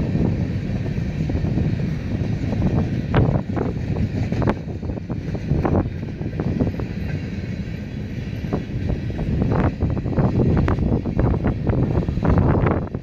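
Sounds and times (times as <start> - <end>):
train wheels rumbling on rail: 0.0 - 13.0
freight cars knocking and clanking: 1.4 - 12.7.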